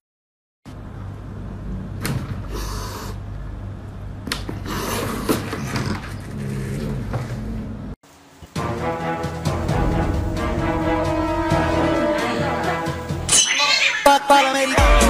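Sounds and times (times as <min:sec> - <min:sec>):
low room rumble: 0:00.7 - 0:08.0, 0:09.0 - 0:13.3.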